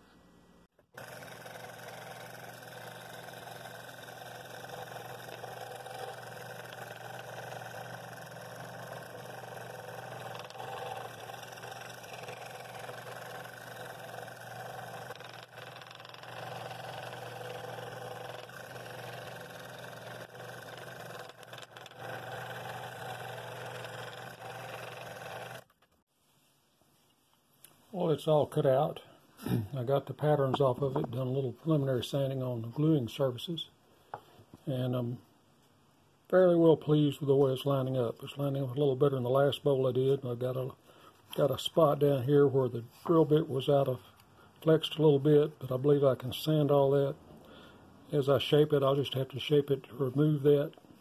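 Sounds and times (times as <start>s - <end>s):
scroll saw cutting wood: 0.9s - 26.0s.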